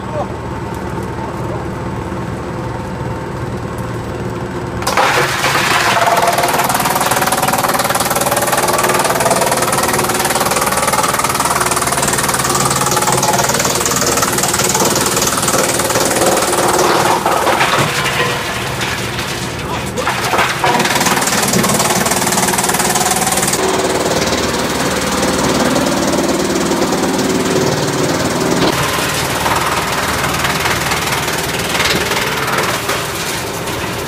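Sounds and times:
wood chipper running: 0.0 - 34.0.

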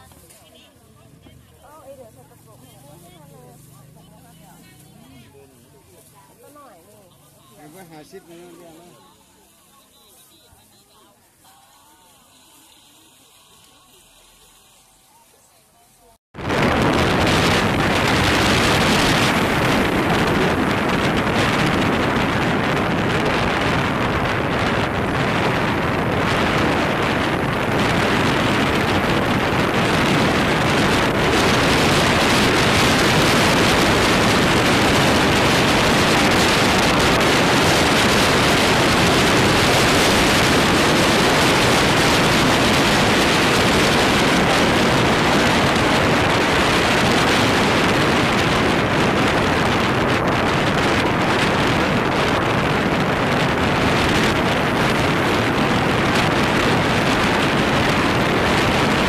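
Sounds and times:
wind rushing over microphone: 16.4 - 59.0.

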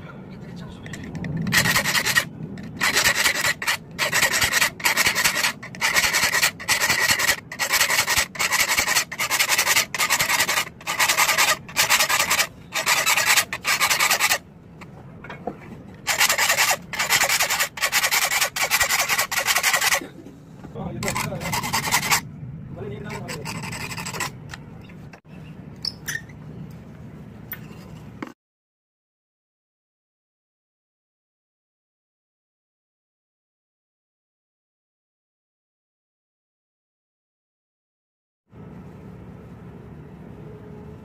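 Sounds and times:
file rasping on saw teeth: 1.4 - 14.4, 16.1 - 20.0, 21.0 - 22.2, 22.9 - 24.6.

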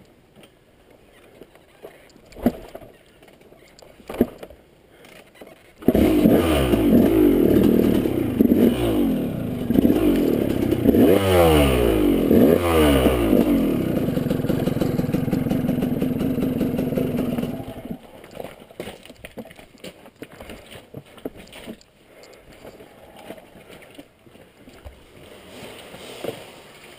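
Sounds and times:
dirt bike engine revving: 5.8 - 18.0.

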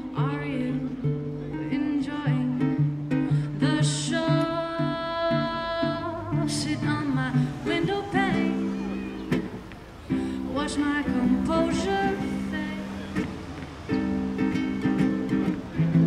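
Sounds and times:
woman singing: 0.0 - 9.5, 10.1 - 13.2
strummed ukulele: 0.0 - 16.0.

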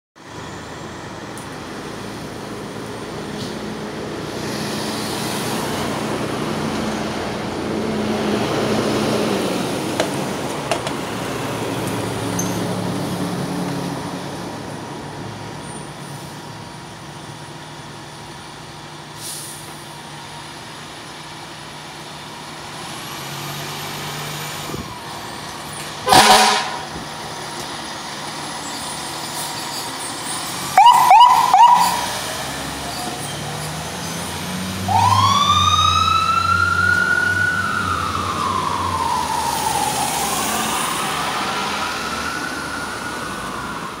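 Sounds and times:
fire engine horn: 26.0 - 27.0, 30.8 - 32.2, 34.9 - 39.6
siren wailing: 30.8 - 32.2, 34.8 - 44.0.

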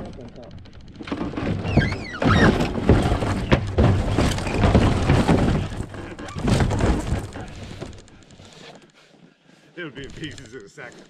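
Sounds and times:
debris crashing and breaking: 0.1 - 8.3.

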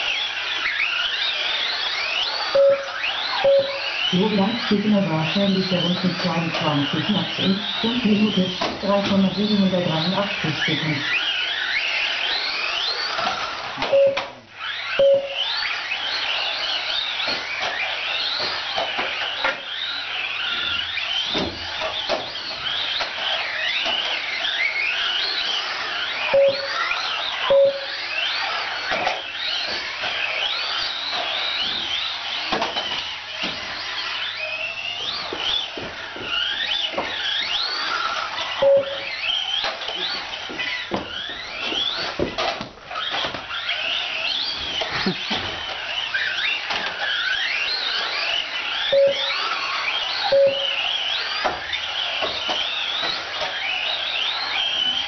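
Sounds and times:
electric motors whining: 0.0 - 55.0
short timer beeps: 2.6 - 3.9, 13.9 - 14.4, 15.0 - 15.4, 26.4 - 26.8, 27.5 - 28.0, 38.6 - 39.1, 48.9 - 49.3, 50.3 - 50.8.

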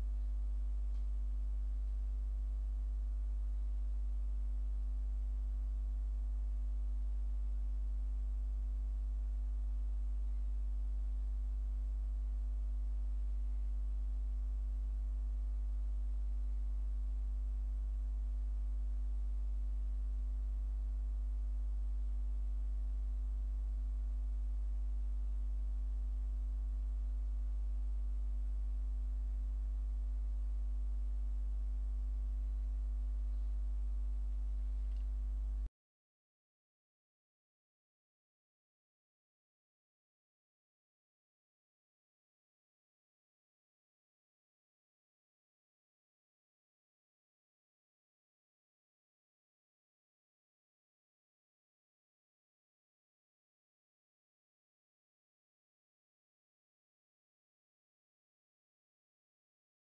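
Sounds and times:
low electrical hum: 0.0 - 35.7.

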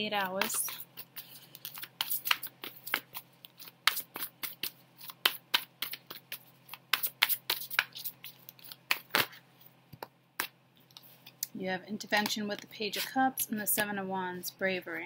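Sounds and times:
cards being shuffled: 0.2 - 9.4.

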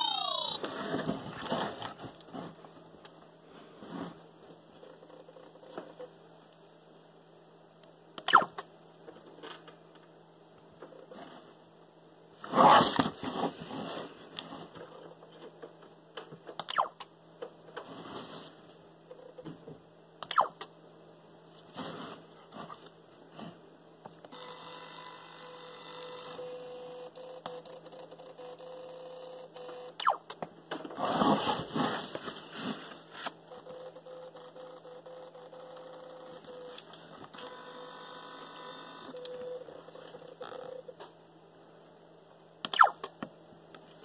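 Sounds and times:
zoom lens motor whir: 24.3 - 27.7, 37.4 - 39.5.

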